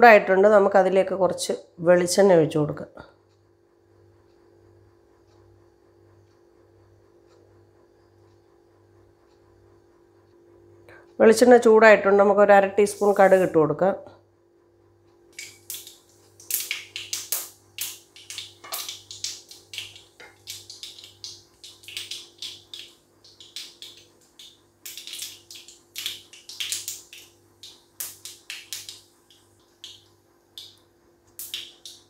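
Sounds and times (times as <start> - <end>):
seeds popping in hot oil: 15.3 - 32.0.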